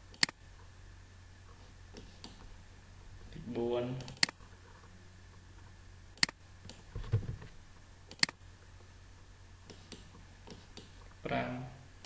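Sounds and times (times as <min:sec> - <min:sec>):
mouse and keyboard clicks: 0:08.1 - 0:08.4, 0:09.7 - 0:11.0.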